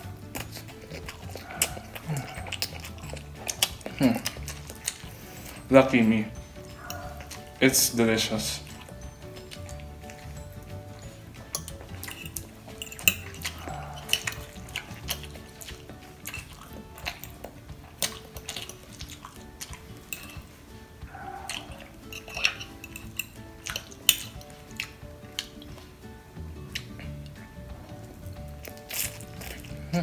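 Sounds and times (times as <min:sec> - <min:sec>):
quiet background music: 0:00.0 - 0:30.0
fork clinking on glass dish: 0:11.2 - 0:17.3, 0:18.0 - 0:20.5, 0:21.5 - 0:24.4.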